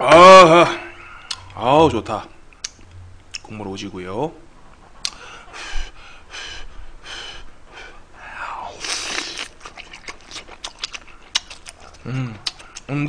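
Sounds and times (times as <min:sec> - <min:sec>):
breathy puffs: 0:04.7 - 0:09.2
slurp: 0:08.7 - 0:12.9
wet chewing clicks: 0:08.8 - 0:13.0.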